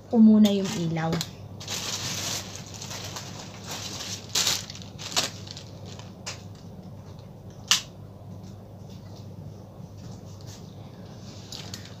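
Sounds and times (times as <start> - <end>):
rustling and handling noise: 0.4 - 7.3.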